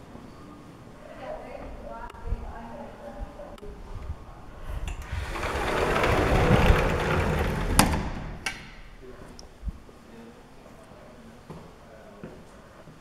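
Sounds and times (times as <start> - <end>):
sliding door rolling on track: 4.8 - 8.8.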